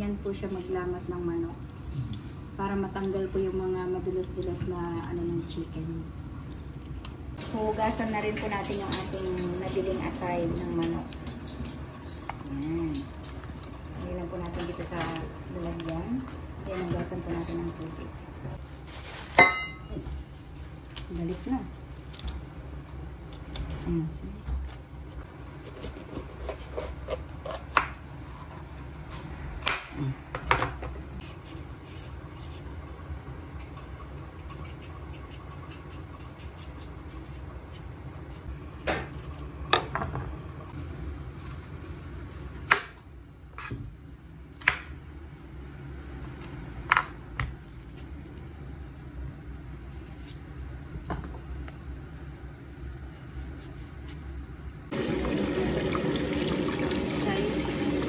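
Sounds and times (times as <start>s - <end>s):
steady low hum: 0.0s - 56.4s
knife cutting vegetables: 33.6s - 37.9s.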